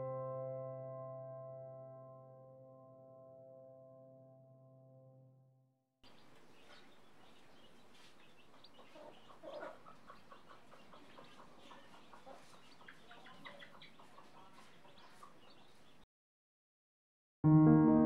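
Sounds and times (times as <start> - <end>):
chicks peeping: 6.0 - 16.0
hen clucking: 6.0 - 16.0.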